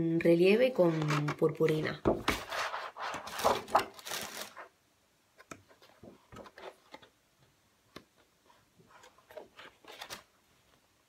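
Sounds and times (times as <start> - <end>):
paper rustles and taps: 2.0 - 4.6
paper sheets swishing: 2.3 - 4.6.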